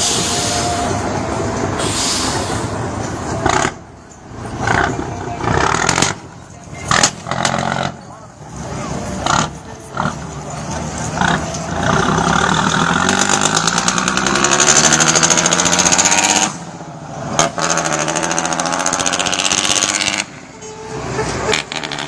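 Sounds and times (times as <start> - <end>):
truck diesel engine revving: 0.0 - 22.0.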